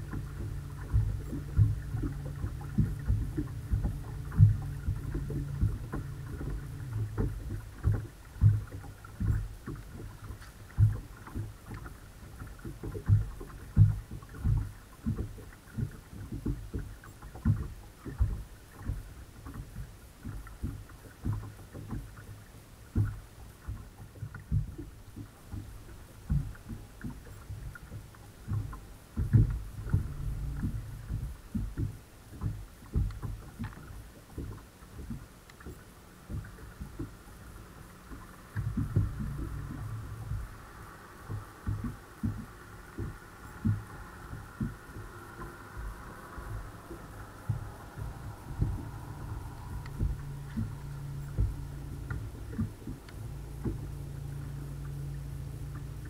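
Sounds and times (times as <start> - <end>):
water slapping against boat hull: 0.0 - 56.0
electric motor hum: 43.2 - 56.0.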